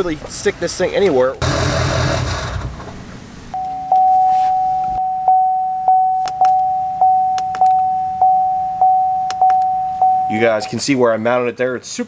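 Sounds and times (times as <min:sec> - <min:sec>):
dashboard warning chime: 0:03.6 - 0:10.6.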